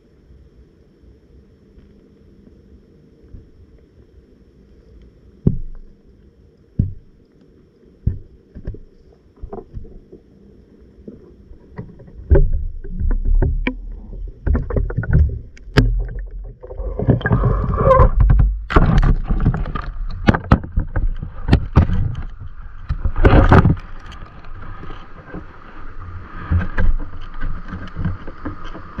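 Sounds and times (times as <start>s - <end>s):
water sloshing: 11.0s - 29.0s.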